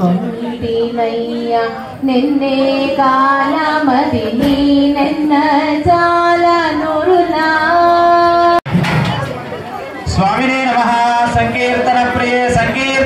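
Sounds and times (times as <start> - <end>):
high voice singing devotional song: 0.0 - 8.6.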